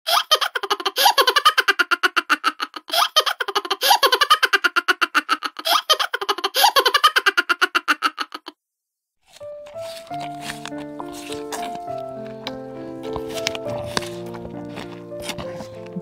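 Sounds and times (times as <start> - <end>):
giggling laughter: 0.1 - 8.6.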